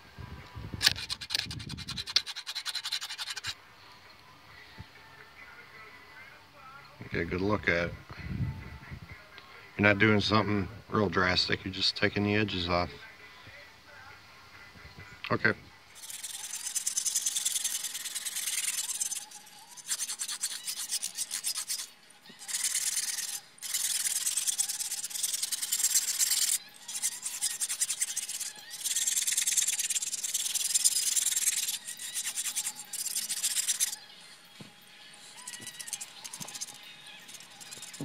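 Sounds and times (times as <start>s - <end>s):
metal file rasping on metal: 0.9s - 3.6s, 16.0s - 34.0s, 35.3s - 38.0s.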